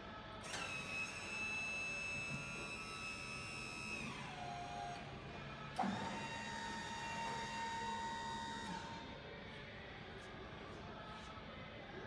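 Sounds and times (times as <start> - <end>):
hydraulic power unit whining: 0.4 - 5.0, 5.8 - 9.1.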